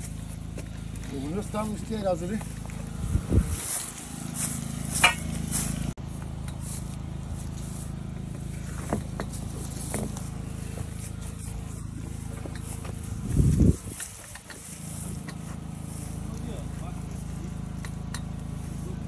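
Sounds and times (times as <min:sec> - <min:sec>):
generator engine running: 0:00.0 - 0:19.0.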